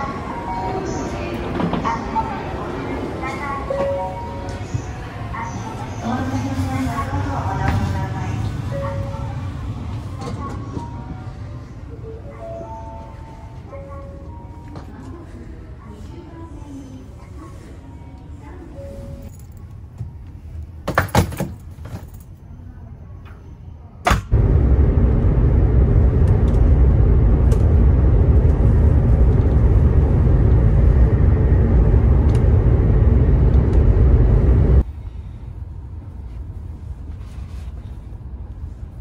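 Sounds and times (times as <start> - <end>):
low rumble: 24.3 - 36.7.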